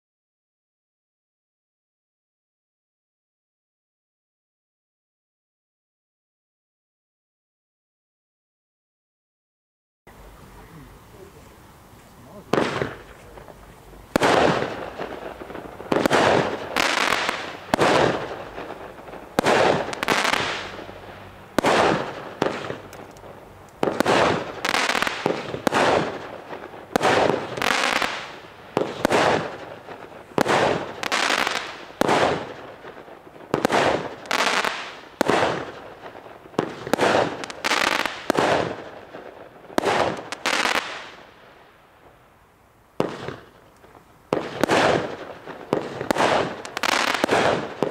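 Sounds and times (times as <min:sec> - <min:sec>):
fireworks aerial bursts: 0:10.1 - 0:42.2, 0:42.9 - 0:47.9.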